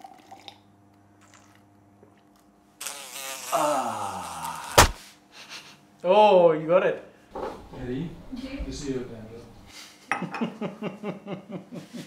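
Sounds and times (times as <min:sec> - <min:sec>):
man's drawn-out vocal cry: 0:03.5 - 0:05.0.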